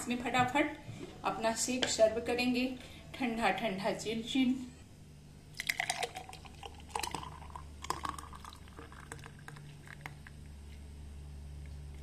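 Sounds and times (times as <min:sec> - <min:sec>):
milkshake pouring and splashing: 0:05.5 - 0:10.4.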